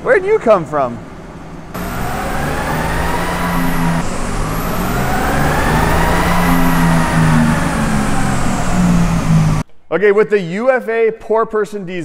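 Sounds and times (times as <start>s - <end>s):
diesel engine under full load: 1.0s - 9.6s.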